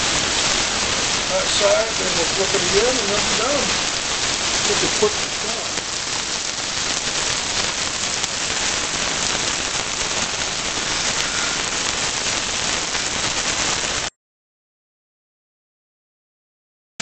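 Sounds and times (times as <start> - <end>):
meat sizzling in a frying pan: 0.0 - 14.1.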